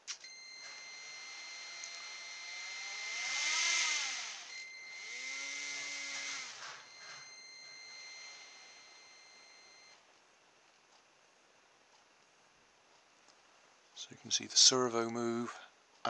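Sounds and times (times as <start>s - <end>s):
high electronic whine: 0.0s - 10.0s
small motor spinning up and down: 0.2s - 9.9s.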